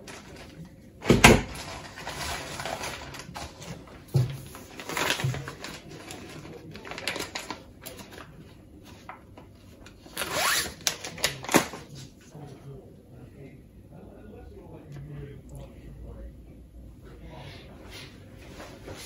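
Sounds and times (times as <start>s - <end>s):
rustling of items handled: 1.4s - 12.4s.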